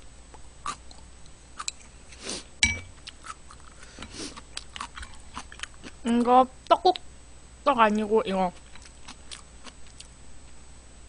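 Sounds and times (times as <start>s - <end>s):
spoon clinking on ceramic bowl: 2.6s - 3.0s
chewing: 3.0s - 6.3s, 8.6s - 10.6s.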